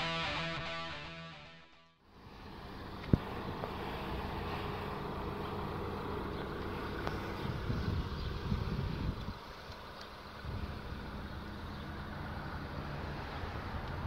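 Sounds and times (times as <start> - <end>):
intro music: 0.0 - 2.0
vehicle hum: 2.0 - 14.0.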